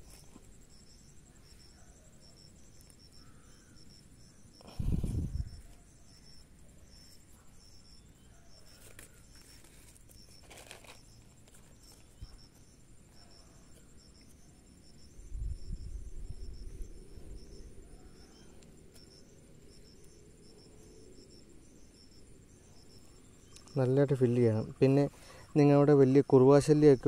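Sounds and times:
insects chirping: 0.0s - 27.0s
faint rustles and clicks: 8.6s - 14.4s.

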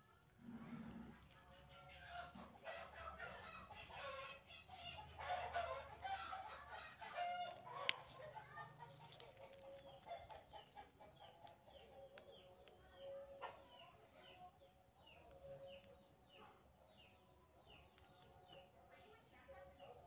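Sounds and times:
animal clucking calls: 0.5s - 14.4s.

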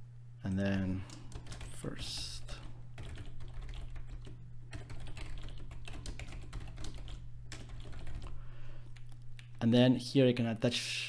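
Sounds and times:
steady low hum: 0.0s - 11.0s
typing on computer keyboard: 1.1s - 8.3s.

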